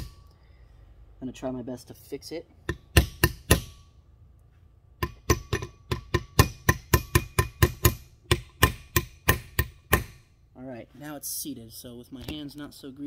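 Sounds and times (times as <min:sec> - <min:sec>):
hammer tapping steel punch: 0:02.6 - 0:03.9, 0:05.0 - 0:10.3.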